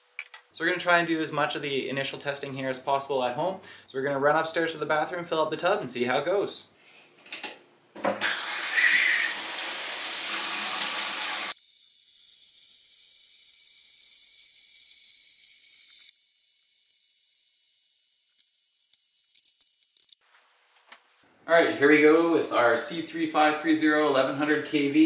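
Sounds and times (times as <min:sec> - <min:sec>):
water pouring into bathtub: 0:08.2 - 0:11.6.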